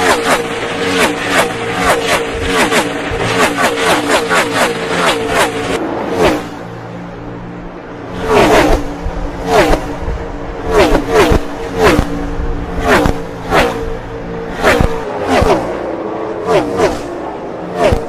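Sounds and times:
race cars passing at full throttle: 0:00.0 - 0:18.0.

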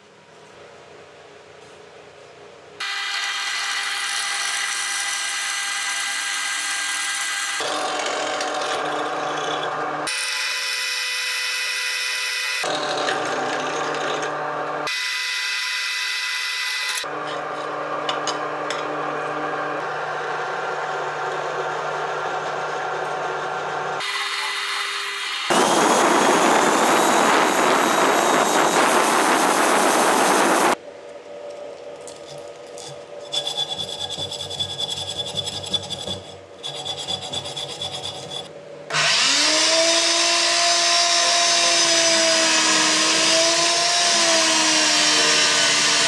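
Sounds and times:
drill bit cutting metal: 0:02.8 - 0:17.1, 0:23.9 - 0:30.8, 0:33.3 - 0:46.0
drill press motor whine: 0:02.8 - 0:30.8, 0:38.3 - 0:46.0.

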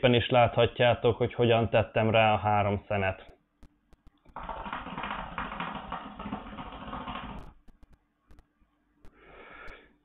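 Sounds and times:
soft breathy exhale: 0:09.2 - 0:10.0.

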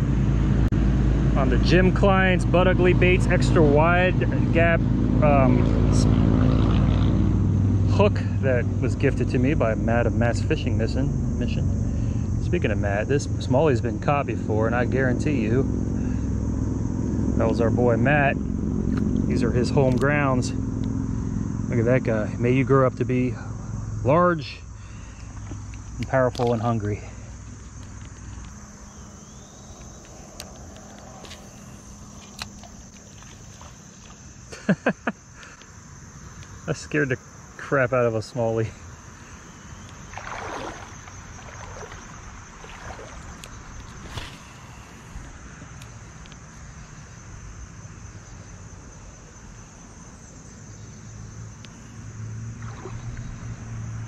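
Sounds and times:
low hum: 0:00.0 - 0:24.1, 0:27.2 - 0:34.4
insects droning: 0:00.0 - 0:54.0.

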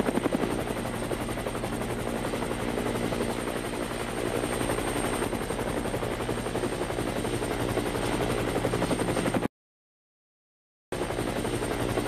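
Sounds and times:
helicopter rotor chopping: 0:00.0 - 0:09.5, 0:11.0 - 0:12.0.

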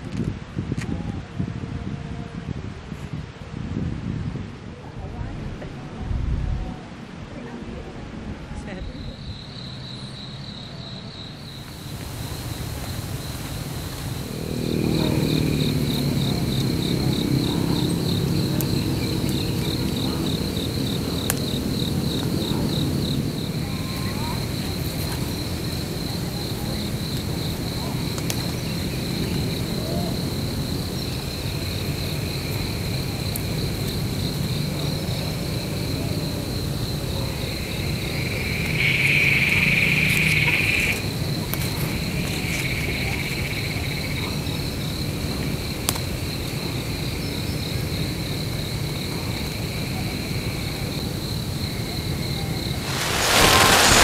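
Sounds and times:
insects high trill: 0:52.8 - 0:54.0
lower insect buzz: 0:52.8 - 0:54.0.

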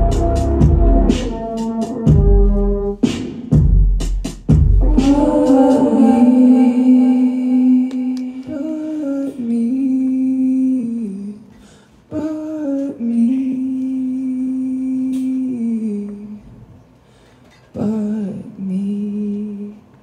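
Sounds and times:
faint backing music: 0:00.0 - 0:10.7
person singing long notes: 0:04.8 - 0:11.5.

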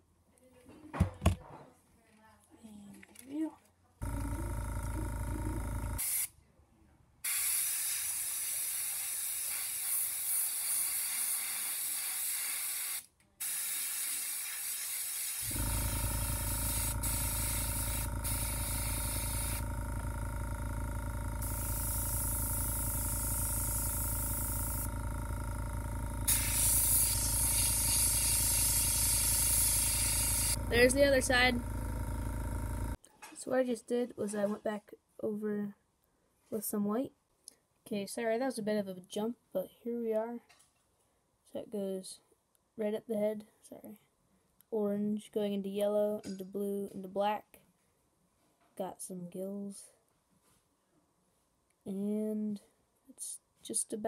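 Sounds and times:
steady low hum: 0:04.0 - 0:06.0, 0:15.4 - 0:33.0
airbrush spraying hiss: 0:07.3 - 0:15.5, 0:16.4 - 0:19.6, 0:21.4 - 0:24.9, 0:26.3 - 0:30.6.

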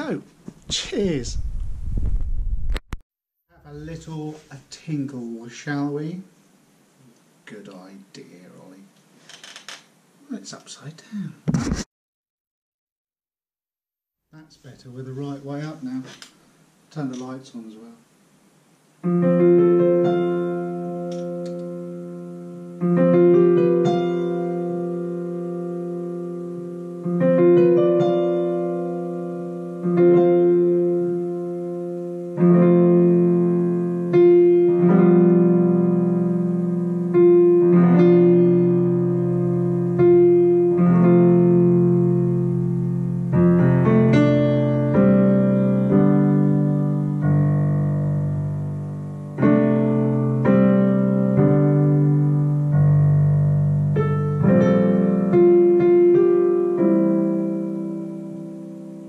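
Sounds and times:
digital piano chords: 0:19.0 - 0:59.0.

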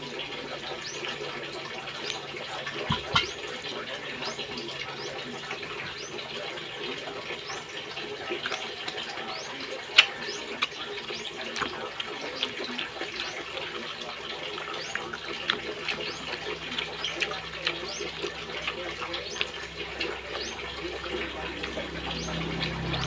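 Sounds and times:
chewing and smacking: 0:00.0 - 0:23.0.

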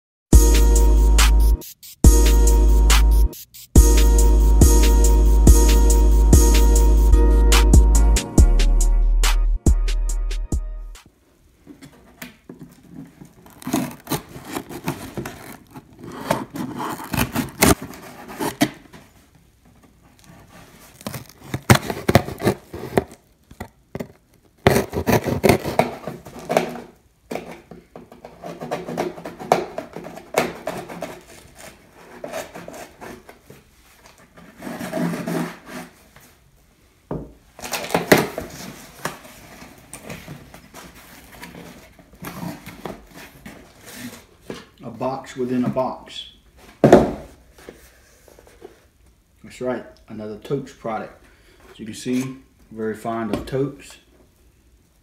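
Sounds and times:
cardboard flaps scraping and rustling: 0:11.7 - 0:23.3, 0:24.0 - 0:36.4, 0:37.6 - 0:44.8
blade slitting packing tape: 0:13.4 - 0:18.8, 0:20.9 - 0:23.2, 0:24.7 - 0:26.8.

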